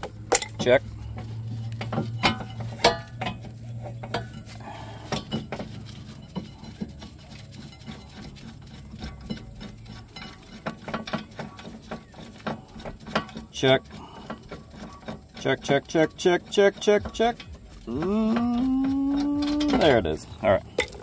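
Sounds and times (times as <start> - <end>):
metal clinks and knocks: 0.0 - 21.0.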